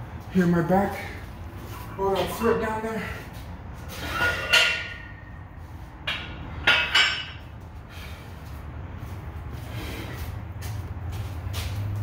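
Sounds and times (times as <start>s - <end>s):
weight plates clinking: 4.0s - 5.3s, 6.1s - 7.5s.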